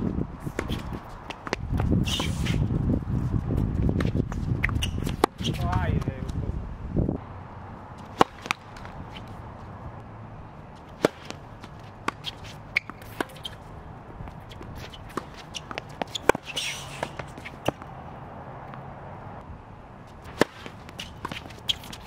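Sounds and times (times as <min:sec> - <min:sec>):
shoe scuffing on court: 0:00.4 - 0:06.4, 0:08.0 - 0:09.7, 0:10.8 - 0:17.9, 0:20.1 - 0:22.0.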